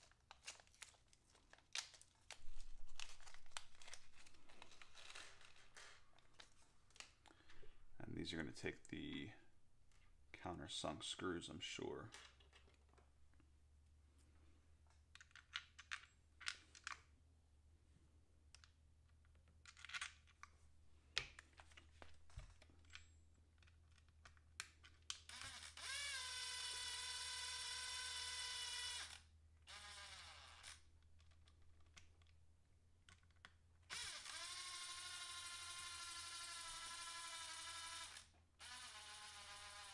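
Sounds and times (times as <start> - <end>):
electric screwdriver whirring: 25.2 - 30.8, 33.9 - 39.9.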